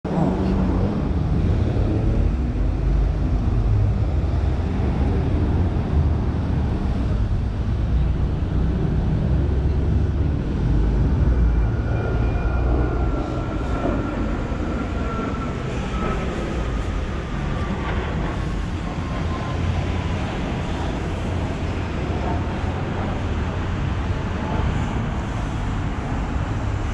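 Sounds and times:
electric wheelchair rolling on pavement: 0.1s - 26.9s.

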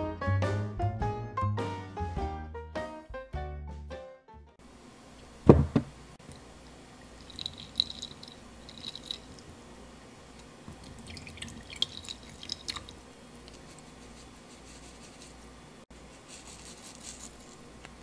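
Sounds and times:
short knocks: 5.4s - 6.0s
milk pouring into saucepan: 6.3s - 13.1s.

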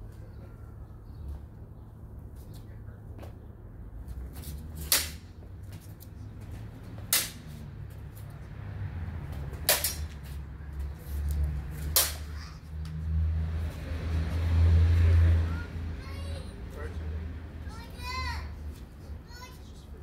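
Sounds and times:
sword blades clashing: 4.8s - 5.2s, 12.0s - 12.4s.

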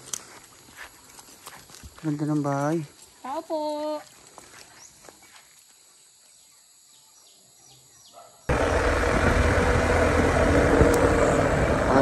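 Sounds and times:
motorcycle engine rumble: 8.5s - 12.0s.

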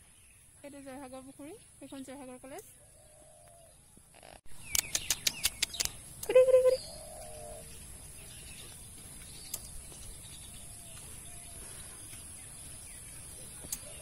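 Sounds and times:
faint bird calls: 2.7s - 7.8s.

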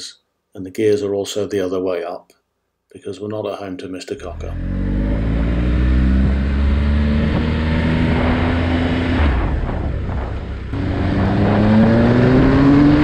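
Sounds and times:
wind rush: 6.2s - 13.0s.

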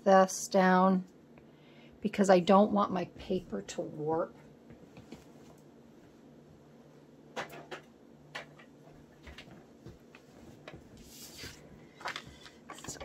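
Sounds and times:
low steady hum: 0.0s - 13.0s
clicks and knocks of craft supplies: 7.4s - 10.9s, 12.0s - 13.0s.

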